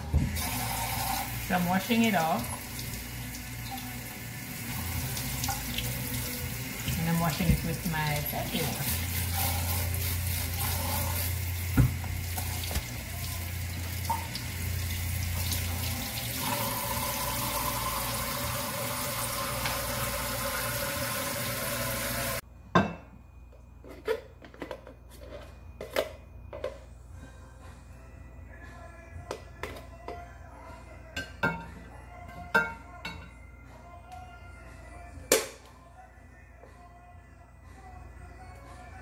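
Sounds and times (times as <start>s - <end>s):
tap running into sink: 11.7s - 12.9s, 19.4s - 20.0s.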